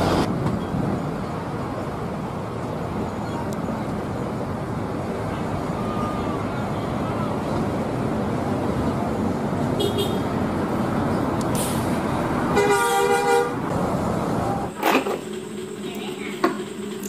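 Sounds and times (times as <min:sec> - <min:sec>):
road traffic rumble: 0:00.0 - 0:17.0
bus horn chord: 0:09.8 - 0:10.3, 0:12.6 - 0:13.6.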